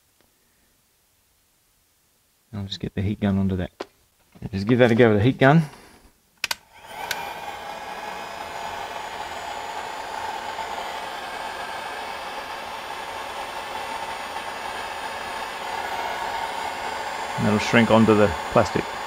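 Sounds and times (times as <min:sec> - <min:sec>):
heat gun fan blowing: 0:06.4 - 0:19.0.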